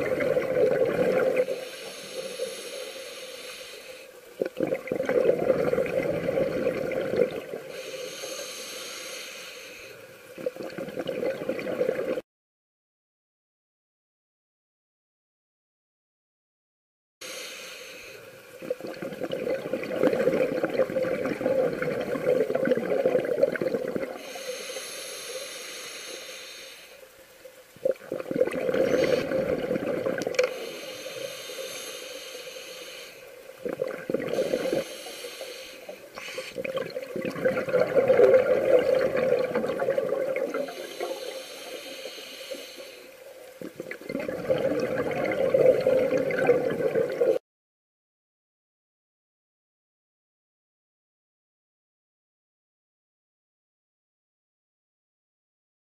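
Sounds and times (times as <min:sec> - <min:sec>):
exhaled bubbles rushing: 0:00.0 - 0:01.6, 0:04.4 - 0:07.7, 0:10.4 - 0:12.2, 0:18.6 - 0:24.2, 0:27.8 - 0:30.5, 0:33.6 - 0:34.9, 0:36.6 - 0:41.2, 0:43.6 - 0:47.4
regulator hissing inhale: 0:01.4 - 0:04.4, 0:07.6 - 0:10.3, 0:17.2 - 0:18.6, 0:24.2 - 0:27.4, 0:28.7 - 0:29.5, 0:30.4 - 0:33.6, 0:34.2 - 0:36.7, 0:40.5 - 0:43.5.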